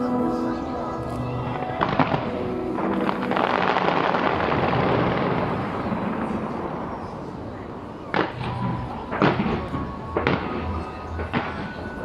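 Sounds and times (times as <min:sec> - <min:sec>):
music: 0:00.0 - 0:05.5, 0:08.1 - 0:12.0
crackling of small firework bursts: 0:01.2 - 0:12.0
fireworks bangs: 0:01.4 - 0:12.0.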